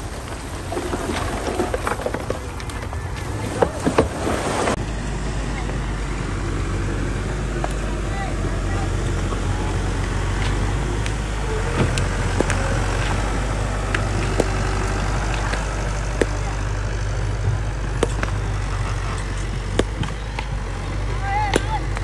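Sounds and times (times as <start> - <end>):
tracks and stones clanking: 0.0 - 4.9
bulldozer diesel engine running: 0.0 - 22.0.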